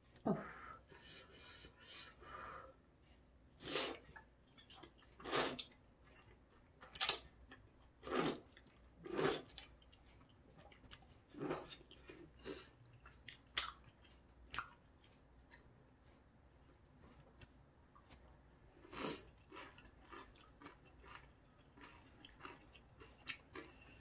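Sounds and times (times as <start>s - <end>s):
person slurping noodles: 5.2s - 5.7s.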